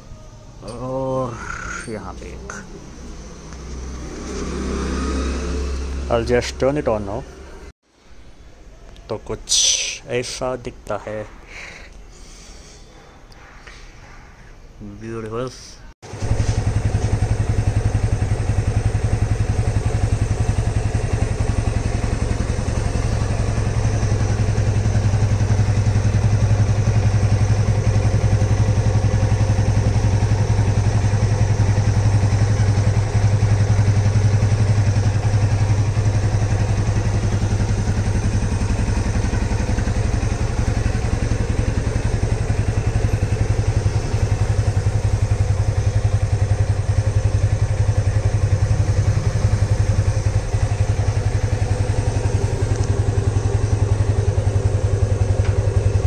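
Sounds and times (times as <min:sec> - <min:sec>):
motorcycle engine idling: 0:16.0 - 0:56.0.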